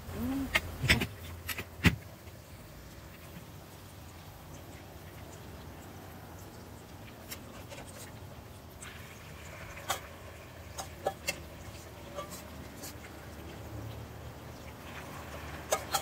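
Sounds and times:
spoon scraping metal bowl: 0:12.0 - 0:13.0.

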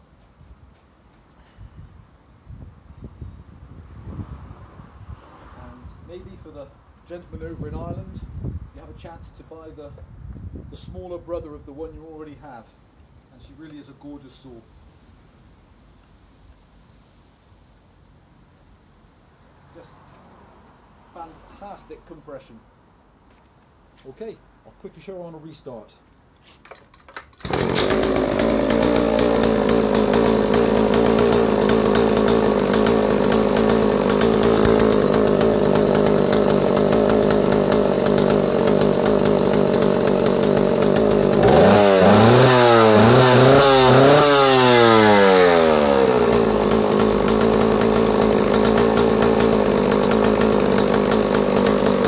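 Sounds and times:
chainsaw idling and revving: 0:27.3 - 0:52.0.

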